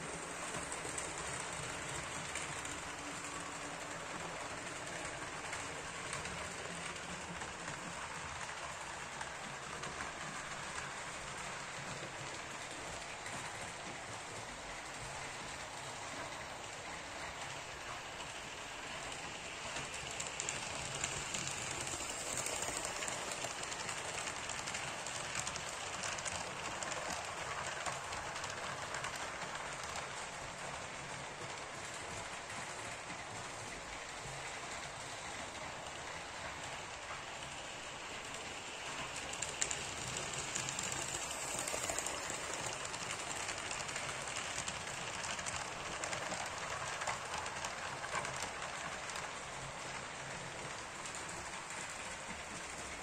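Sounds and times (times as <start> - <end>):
model train wheels rolling on rails: 0.0 - 53.0.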